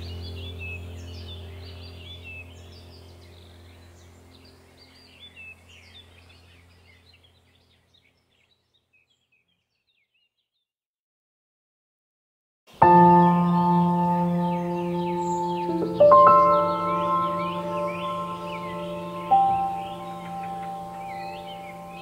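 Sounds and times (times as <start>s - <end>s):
low steady drone: 0.0s - 7.4s, 12.8s - 22.0s
birds chirping: 0.0s - 10.7s, 12.7s - 22.0s.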